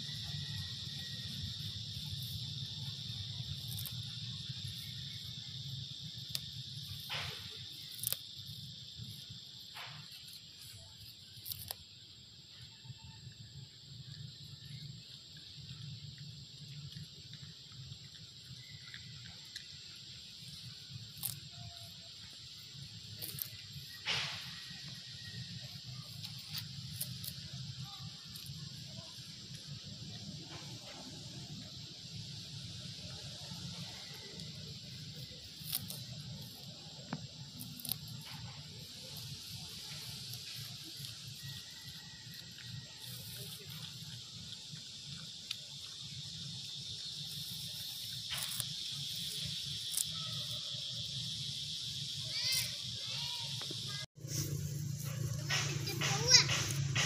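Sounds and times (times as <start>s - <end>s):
insects droning high buzz: 0.0s - 57.0s
steady outdoor hiss: 0.0s - 57.0s
grass snapping: 3.4s - 5.4s, 6.1s - 11.8s, 20.5s - 21.9s, 23.0s - 25.0s, 26.1s - 28.5s, 35.1s - 45.6s, 47.0s - 50.6s, 54.2s - 57.0s.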